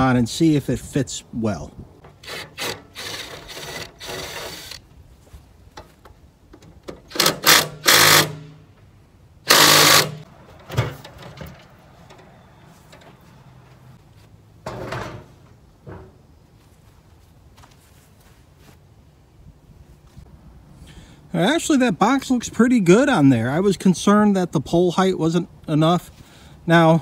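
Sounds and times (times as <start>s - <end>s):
cordless drill running: 2.2s - 4.8s, 7.1s - 8.4s, 9.5s - 10.2s.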